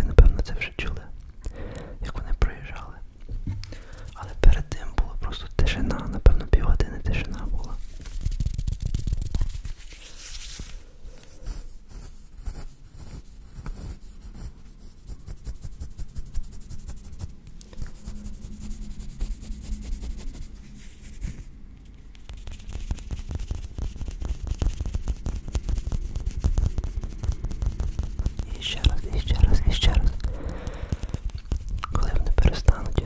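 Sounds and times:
fingers rubbing a microphone: 0:07.1 - 0:10.6, 0:22.2 - 0:33.0
fingertips tapping microphone grille: 0:21.2 - 0:33.0.

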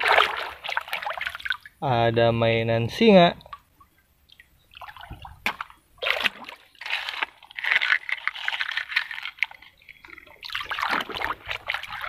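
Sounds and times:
toy truck scraping wet stones: 0:06.6 - 0:10.1.

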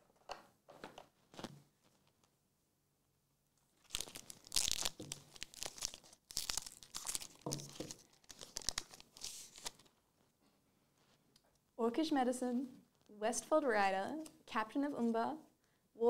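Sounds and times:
foil wrapper ripping and crinkling: 0:03.8 - 0:09.9.

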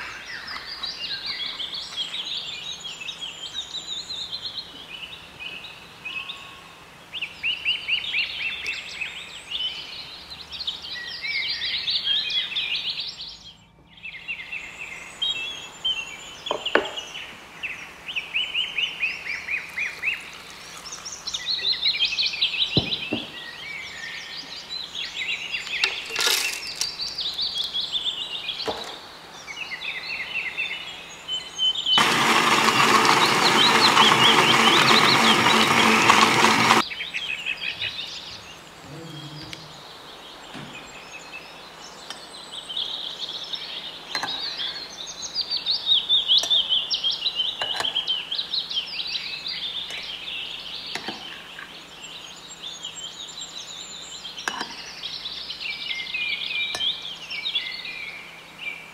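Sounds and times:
birds chirping: 0:07.2 - 0:58.9
electric blender running: 0:32.0 - 0:36.8.

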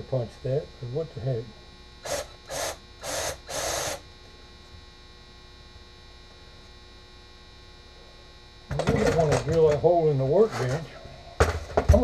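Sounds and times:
steady electrical hum: 0:00.0 - 0:12.0
power drill boring into wood: 0:02.0 - 0:04.0.

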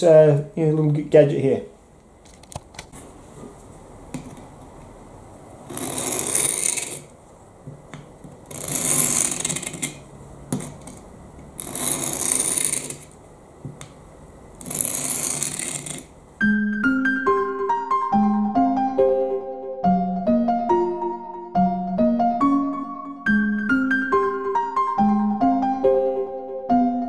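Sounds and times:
knife rasping on sharpener: 0:05.7 - 0:07.1, 0:08.5 - 0:10.0, 0:11.6 - 0:13.1, 0:14.6 - 0:16.1.

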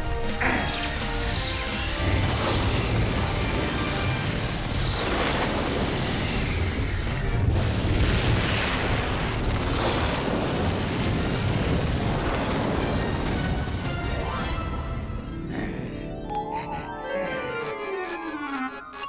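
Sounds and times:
music: 0:00.0 - 0:09.3, 0:11.6 - 0:19.0
cartoon lightning effects: 0:00.6 - 0:14.8
deep rumbling booms: 0:02.3 - 0:14.1.

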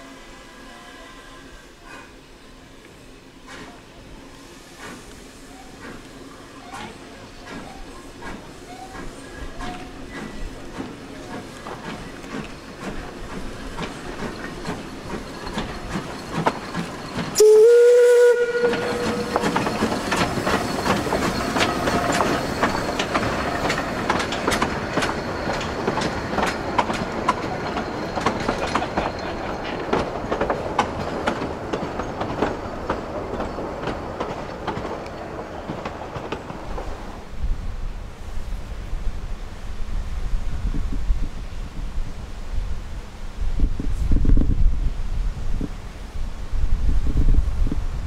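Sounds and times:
steam locomotive whistle: 0:00.0 - 0:02.0, 0:17.3 - 0:23.1
train coaches clattering over rail joints: 0:05.7 - 0:37.1.

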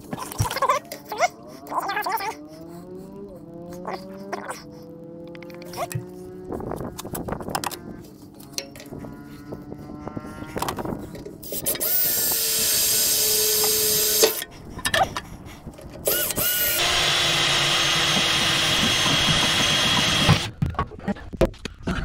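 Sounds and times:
power drill running: 0:11.5 - 0:14.4, 0:16.0 - 0:20.5.

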